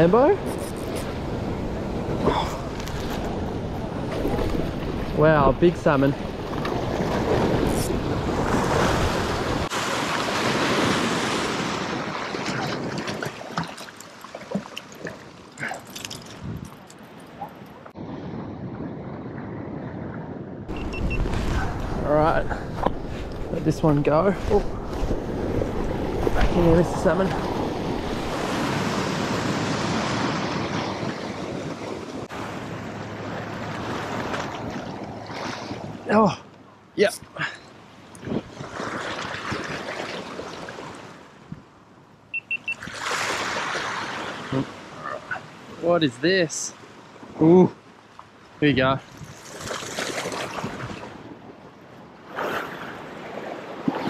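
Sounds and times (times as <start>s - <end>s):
surf washing against rocks: 2.1s - 14.6s, 21.1s - 32.7s, 42.8s - 44.9s
wind buffeting microphone: 16.3s - 16.8s, 17.9s - 32.6s, 38.2s - 39.9s.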